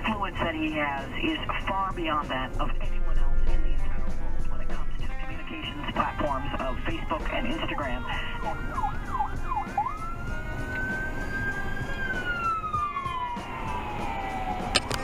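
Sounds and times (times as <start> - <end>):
road noise: 0.0 - 15.0
ambulance siren: 5.2 - 15.0.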